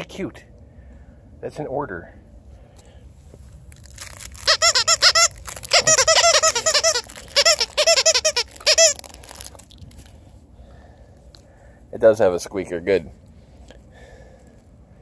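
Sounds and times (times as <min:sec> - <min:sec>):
dog toy squeaking: 0:04.0 - 0:09.5.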